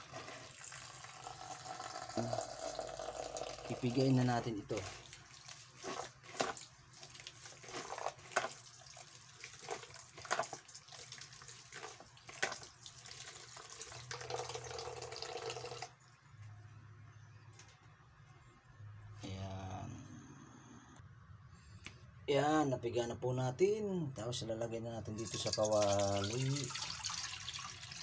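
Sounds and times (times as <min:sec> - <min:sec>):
hands squeezing wet coconut: 0:00.0 - 0:15.9, 0:25.2 - 0:28.0.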